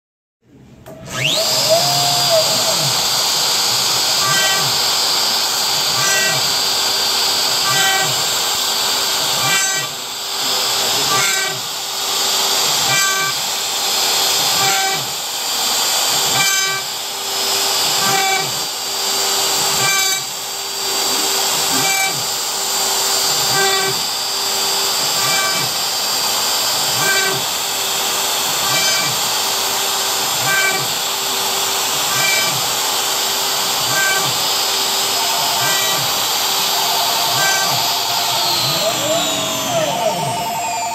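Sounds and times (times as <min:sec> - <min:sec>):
bit cutting wood: 0:00.9 - 0:40.9
router spindle whining: 0:00.9 - 0:40.9
short pitched tone: 0:35.0 - 0:40.9.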